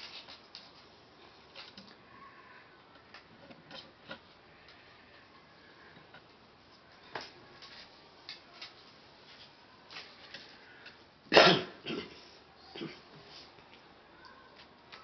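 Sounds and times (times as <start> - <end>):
person coughing: 11.3 - 13.0.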